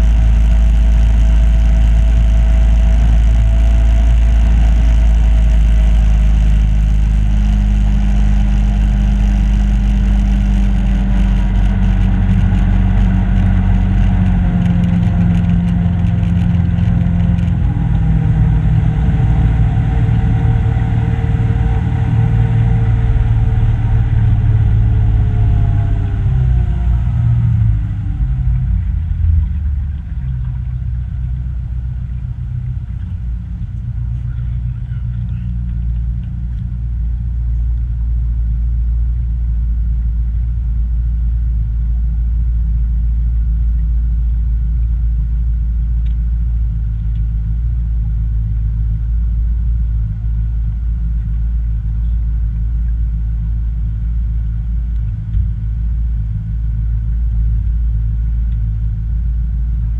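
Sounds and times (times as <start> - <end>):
boat motor running: 0.0 - 38.0.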